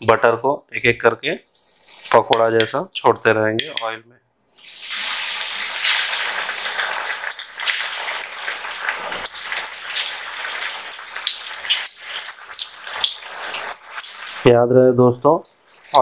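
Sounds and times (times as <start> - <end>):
batter sizzling in hot oil: 4.6 - 14.5.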